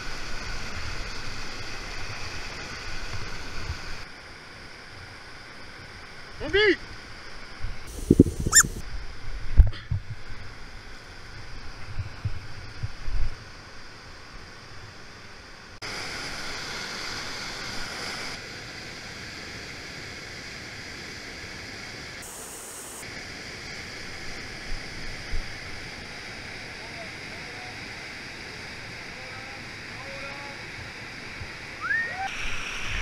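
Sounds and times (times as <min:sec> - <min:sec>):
low thumps: 0:07.9 - 0:08.8.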